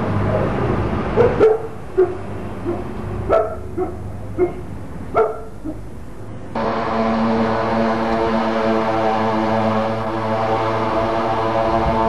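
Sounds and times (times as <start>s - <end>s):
low hum: 0.0s - 12.0s
dog barking: 1.2s - 5.8s.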